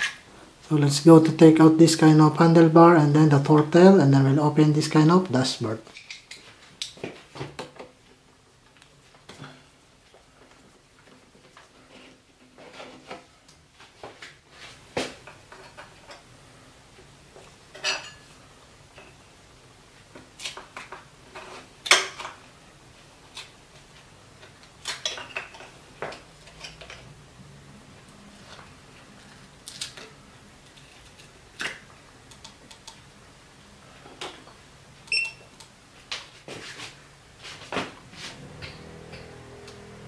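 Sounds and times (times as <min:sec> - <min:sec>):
hands and tools clicking and knocking: 0:30.7 - 0:33.1.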